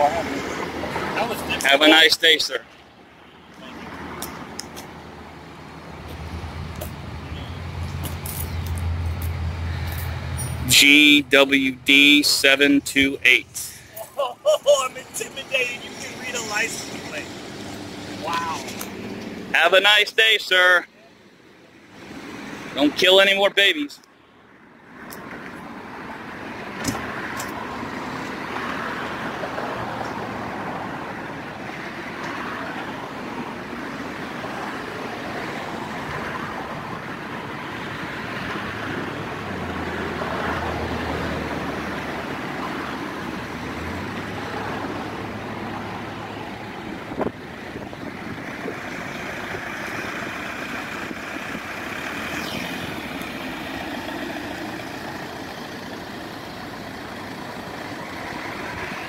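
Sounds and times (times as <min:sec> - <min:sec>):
road traffic noise: 0:00.0 - 0:59.0
low engine rumble: 0:42.0 - 0:59.0.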